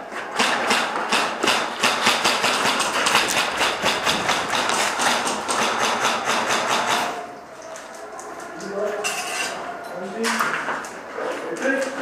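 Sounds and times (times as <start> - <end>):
rapid airsoft gunfire: 0.3 - 7.2.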